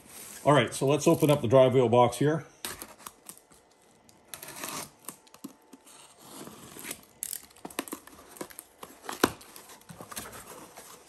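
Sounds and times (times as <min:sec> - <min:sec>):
box cutter slicing tape: 0:04.3 - 0:09.5
cardboard scraping and rustling: 0:07.7 - 0:11.0.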